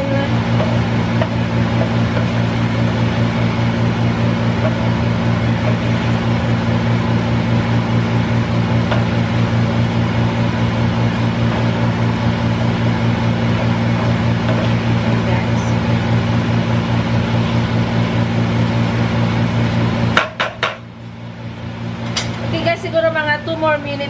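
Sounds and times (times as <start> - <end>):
exhaust fan humming: 0.0 - 24.0
wooden spatula stirring: 0.4 - 3.0, 13.5 - 14.9.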